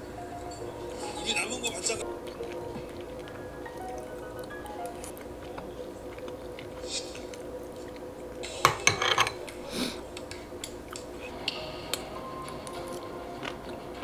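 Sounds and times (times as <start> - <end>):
dishes and utensils clinking: 0.0 - 4.2, 8.4 - 9.6.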